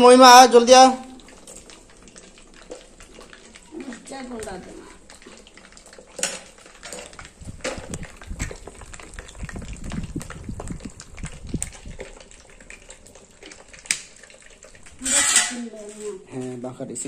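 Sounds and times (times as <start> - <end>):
fish frying in oil: 0.0 - 17.0.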